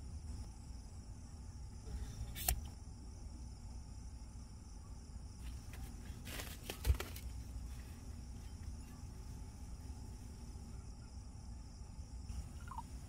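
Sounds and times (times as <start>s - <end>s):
crickets chirring: 0.0s - 13.0s
plastic pack rustling: 5.7s - 7.4s.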